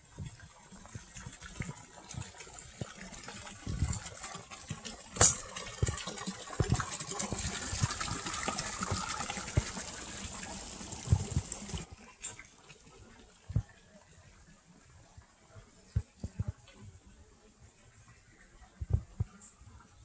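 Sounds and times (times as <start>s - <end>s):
water pouring into pond: 0.0s - 15.6s.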